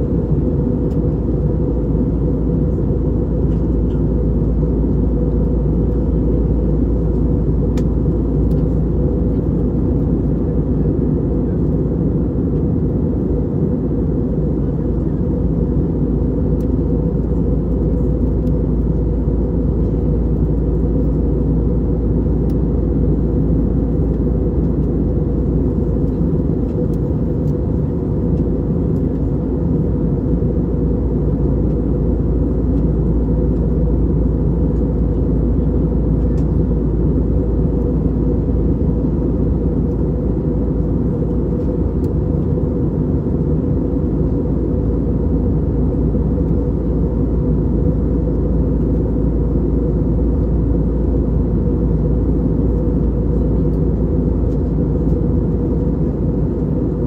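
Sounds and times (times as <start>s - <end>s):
airplane cabin rumble: 0.0s - 57.0s.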